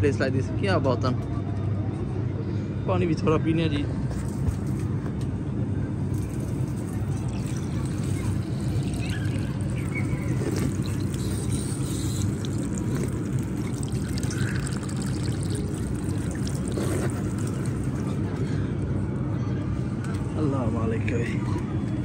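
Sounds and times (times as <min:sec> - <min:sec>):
water splashing on drain grate: 0:06.1 - 0:18.2.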